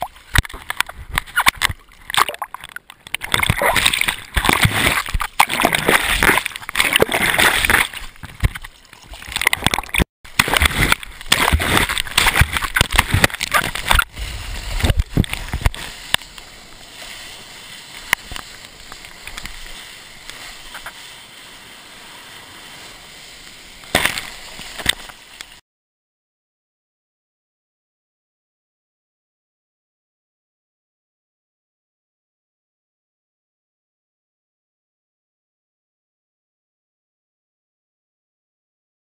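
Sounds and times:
seawater splashing and rushing: 0.0s - 25.6s.

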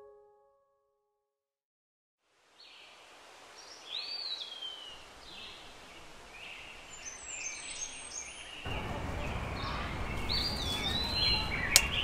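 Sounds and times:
birds chirping: 3.6s - 12.0s.

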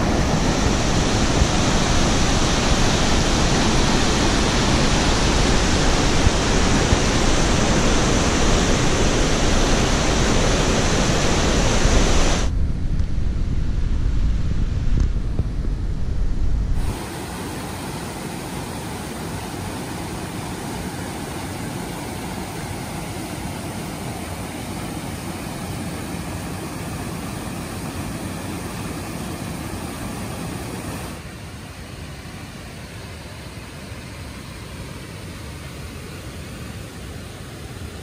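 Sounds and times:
river rushing over boulders: 0.0s - 12.5s, 16.8s - 38.0s
heavy low rumble: 5.5s - 16.9s.

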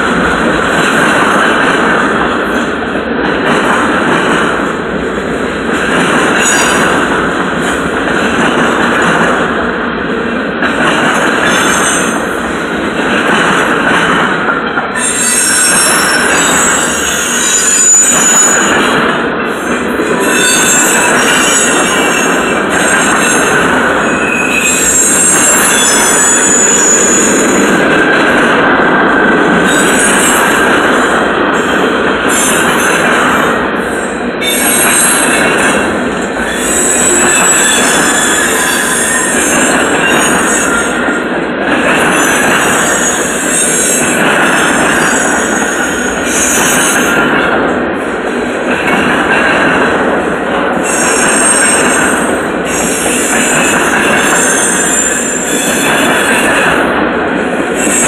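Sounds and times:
train wheels rumbling on rail: 0.0s - 58.0s
high-pitched wheel squeal: 15.0s - 18.7s, 20.2s - 22.0s, 24.1s - 27.4s, 36.5s - 39.5s.

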